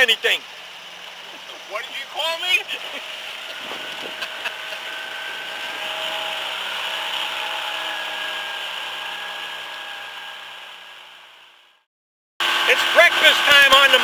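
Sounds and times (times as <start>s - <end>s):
water hiss: 0.0s - 9.9s
outboard motor whine: 0.0s - 14.0s.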